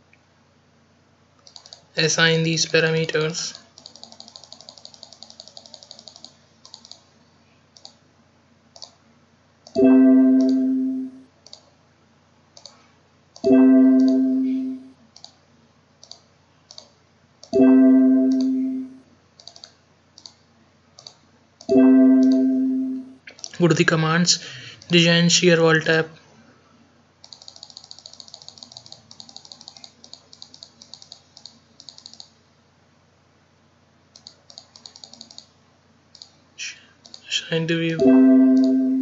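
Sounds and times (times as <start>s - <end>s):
computer mouse clicks: 1.4s - 1.9s, 3.7s - 7.1s, 7.7s - 8.0s, 8.7s - 9.0s, 11.4s - 11.7s, 12.5s - 12.8s, 13.4s - 14.2s, 15.1s - 15.4s, 16.0s - 17.6s, 18.3s - 18.6s, 19.4s - 20.4s, 21.0s - 22.4s, 27.2s - 32.4s, 34.1s - 35.5s, 36.1s - 36.4s, 37.0s - 37.3s
key or wheel clicks: 3.8s - 7.0s, 27.3s - 32.3s.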